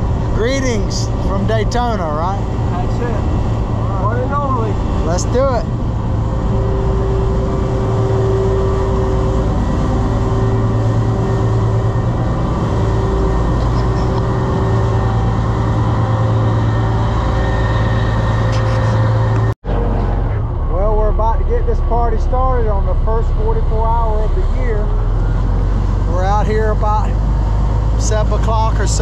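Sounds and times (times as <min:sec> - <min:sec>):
boat engines humming: 0:00.0 - 0:29.0.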